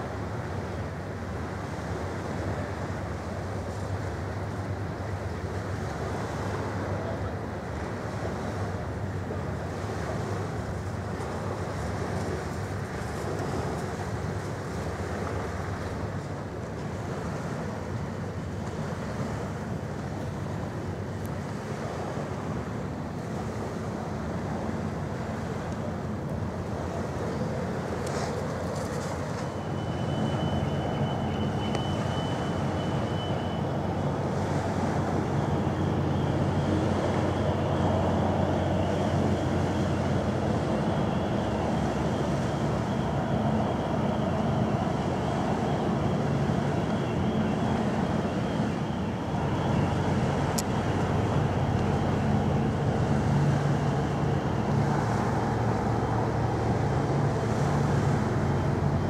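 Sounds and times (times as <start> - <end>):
ferry engines droning: 0.0 - 59.0
water noise: 0.0 - 59.0
wind: 0.0 - 59.0.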